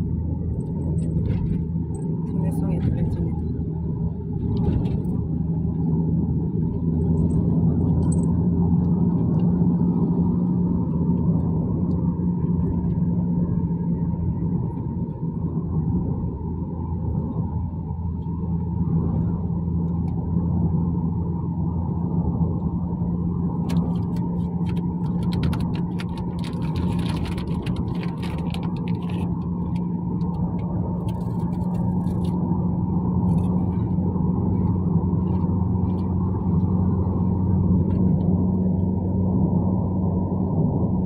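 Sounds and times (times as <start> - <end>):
engine and road drone: 0.0 - 41.0
light clicks and crackles: 23.6 - 32.4.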